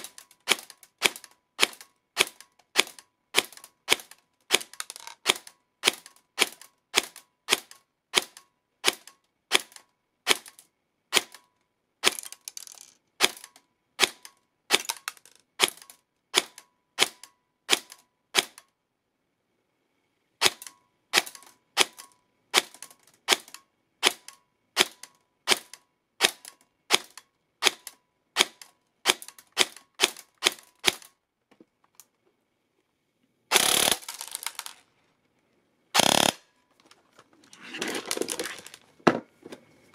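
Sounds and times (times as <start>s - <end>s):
airsoft gun shots: 33.5s - 34.7s, 36.0s - 36.4s.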